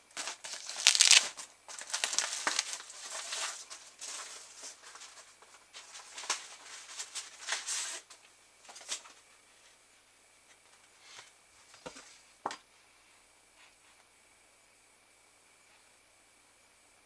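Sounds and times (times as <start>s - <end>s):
plastic packaging crinkling: 0.1s - 5.2s.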